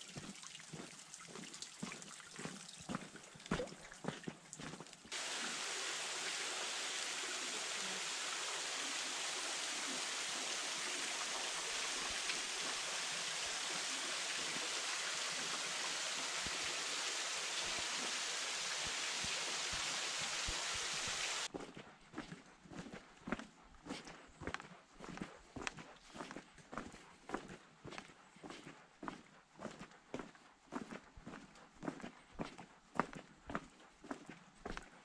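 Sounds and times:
flowing water rushing: 0.0 - 21.5.

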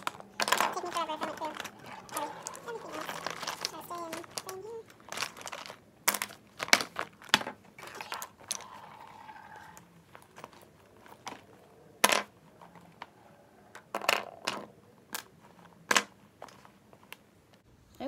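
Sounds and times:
small bottles clacking on wood: 0.0 - 9.5
rummaging in plastic pouch: 0.0 - 11.6.

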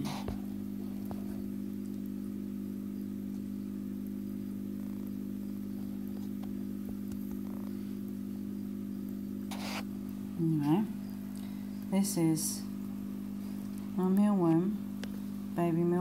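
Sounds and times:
mechanical hum with low tones: 0.0 - 16.0.

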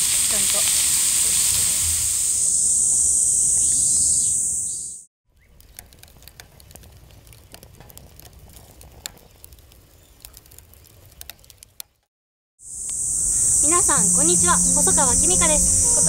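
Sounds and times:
food sizzling on a griddle: 0.0 - 3.0
faint crackles and ticks: 5.4 - 12.1
low rumble: 13.2 - 16.0.

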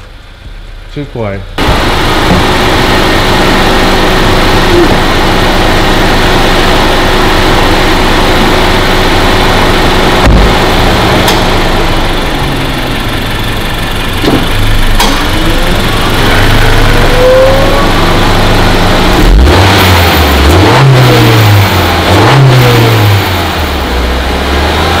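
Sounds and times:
car engine idling: 0.0 - 25.0
sharp thump: 1.6 - 2.6, 10.2 - 10.6, 14.2 - 15.4.

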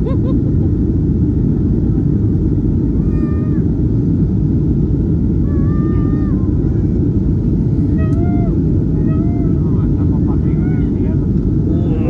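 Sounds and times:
airliner cabin noise: 0.0 - 12.0.

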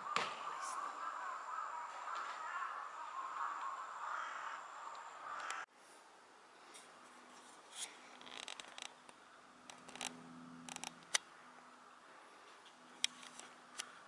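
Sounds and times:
faint clicks: 4.9 - 5.6.

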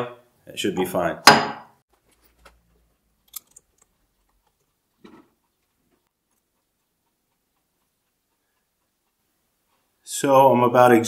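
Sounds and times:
caliper clicking on metal pins: 3.2 - 4.6.

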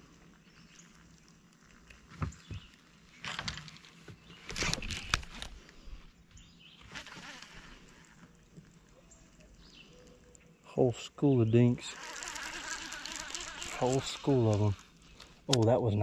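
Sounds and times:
fishing reel whirring: 6.8 - 8.4, 11.8 - 15.5.

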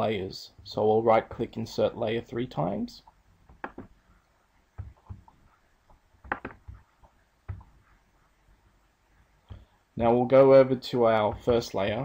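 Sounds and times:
computer mouse clicking: 3.5 - 3.9, 4.8 - 6.8.

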